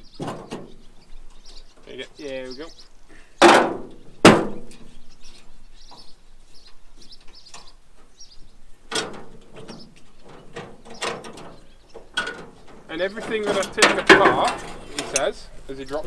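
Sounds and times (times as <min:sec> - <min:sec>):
birds chirping: 0:00.0 - 0:16.0
knocks and rattles: 0:00.1 - 0:01.5, 0:08.9 - 0:15.4
loud metal clanks: 0:03.4 - 0:04.9, 0:08.9 - 0:15.4.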